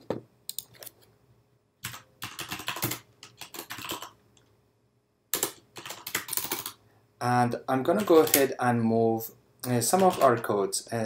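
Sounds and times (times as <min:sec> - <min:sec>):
keyboard typing: 0:01.8 - 0:04.2, 0:05.3 - 0:06.8, 0:07.9 - 0:08.5, 0:09.6 - 0:10.5.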